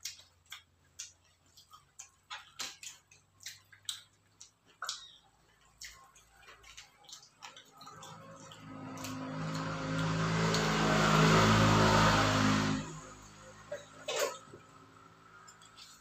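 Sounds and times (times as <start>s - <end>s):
person chewing: 0.0s - 11.4s, 15.4s - 16.0s
vehicle approaching: 7.6s - 16.0s.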